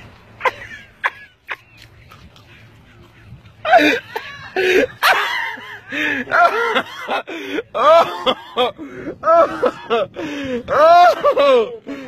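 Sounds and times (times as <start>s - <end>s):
people laughing: 2.9s - 10.2s.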